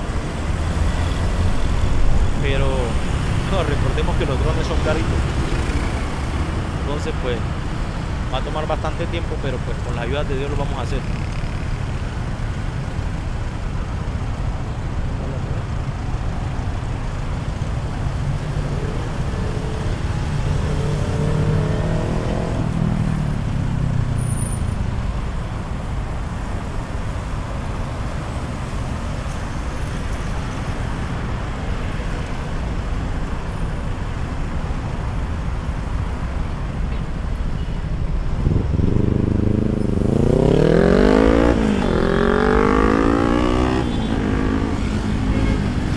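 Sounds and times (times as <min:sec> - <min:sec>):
traffic engines rumbling: 0:00.0 - 0:45.9
engine revving: 0:20.7 - 0:23.2, 0:38.8 - 0:45.9.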